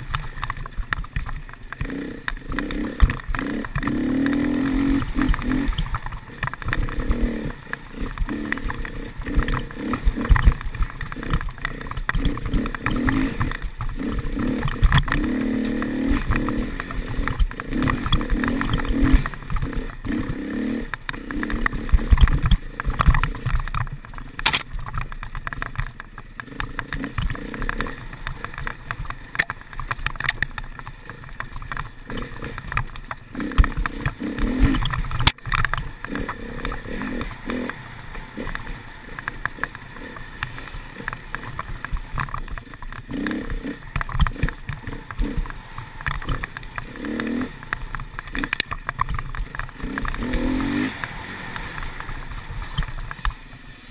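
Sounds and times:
dirt bike engine revving: 0.0 - 24.7, 25.5 - 53.9
bike knocks and rattles: 0.0 - 53.9.

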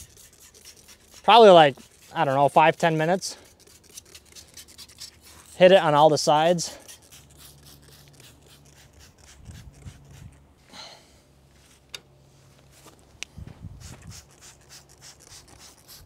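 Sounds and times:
spray bottle squirts: 3.5 - 5.6, 6.7 - 10.3, 13.8 - 16.0.

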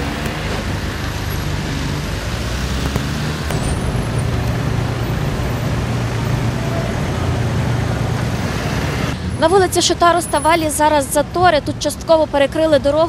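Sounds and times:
cars idling in traffic: 0.0 - 13.0
road noise: 0.0 - 13.0.

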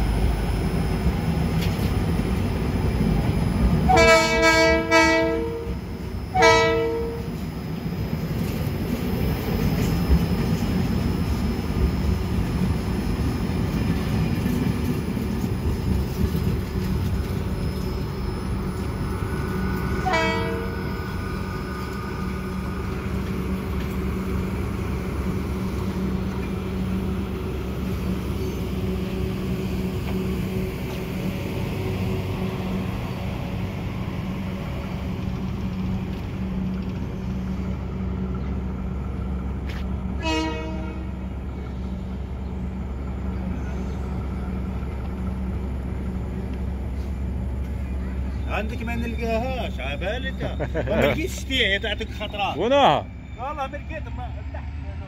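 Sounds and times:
train rumbling away: 0.0 - 55.0
locomotive horn blasts: 3.9 - 7.4, 20.0 - 20.9, 40.2 - 41.2.

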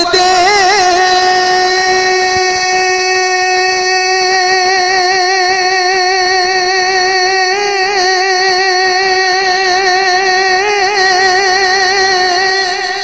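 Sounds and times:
steady drone on one note: 0.0 - 4.2
person singing verses: 0.0 - 13.0.

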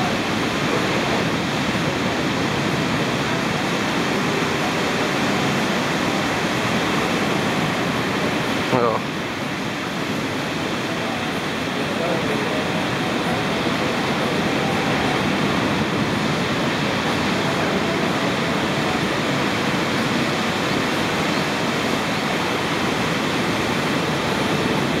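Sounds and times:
ocean waves breaking: 0.0 - 25.0.

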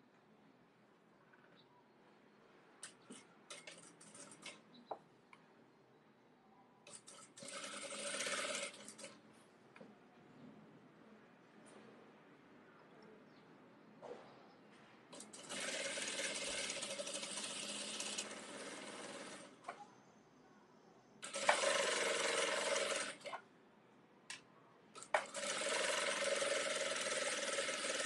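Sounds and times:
sewing machine running: 6.9 - 9.2, 15.2 - 19.6, 21.2 - 23.3, 25.0 - 28.0.

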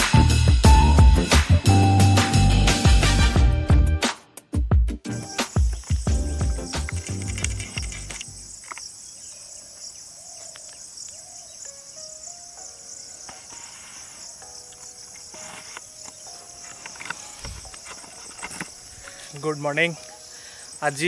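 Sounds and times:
insects pulsing buzz: 5.0 - 21.0.

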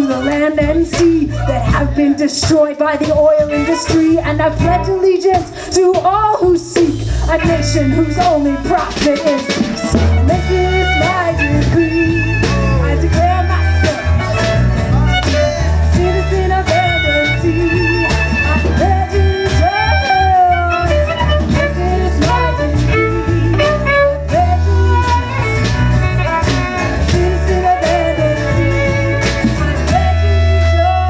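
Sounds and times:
electric bass line: 0.0 - 2.2, 3.0 - 5.4, 6.0 - 31.0
acoustic guitar: 0.0 - 31.0
woman singing: 0.0 - 31.0
drum hits: 6.4 - 30.1
violin: 7.3 - 31.0.

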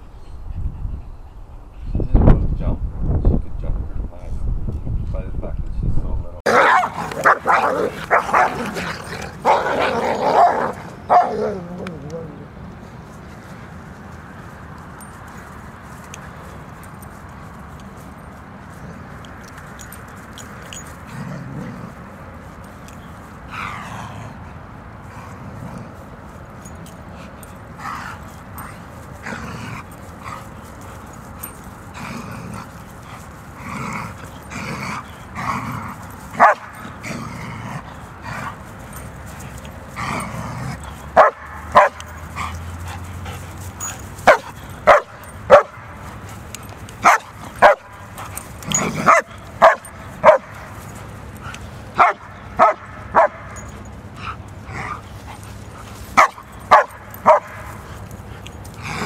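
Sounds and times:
dogs barking sharply: 6.5 - 11.6, 36.3 - 37.0, 40.0 - 46.0, 47.0 - 55.0, 56.1 - 58.0.

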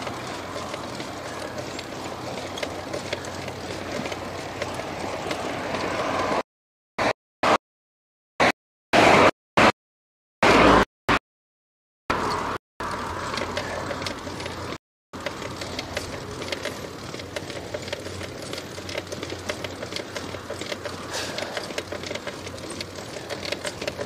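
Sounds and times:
bicycle ticking and rattling: 0.0 - 6.2, 12.1 - 24.0.

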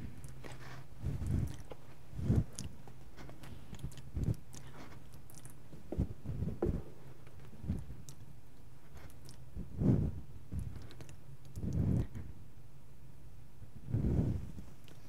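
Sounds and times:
steady low hum: 0.0 - 15.0
soft thumps and rustles: 5.7 - 7.8.

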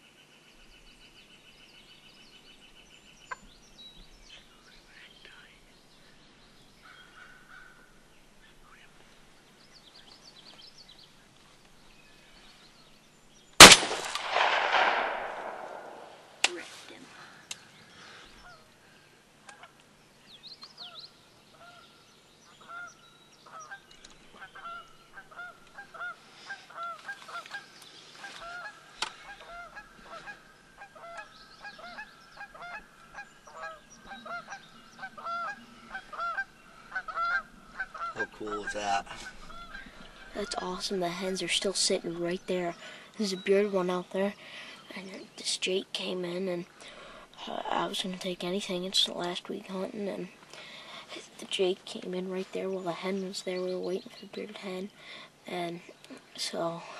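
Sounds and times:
shotgun blast with echo: 13.6 - 16.3
turkeys yelping: 23.6 - 40.9.

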